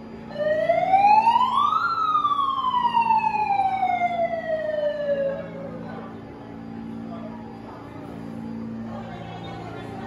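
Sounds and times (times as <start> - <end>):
megaphone siren wail: 0.3 - 5.6.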